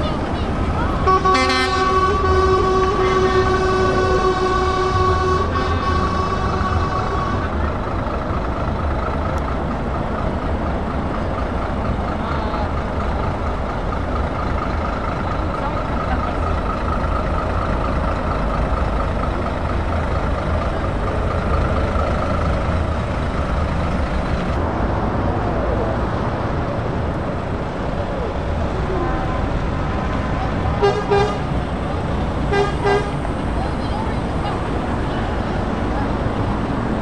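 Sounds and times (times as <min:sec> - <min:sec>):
diesel truck engines rumbling: 0:00.0 - 0:37.0.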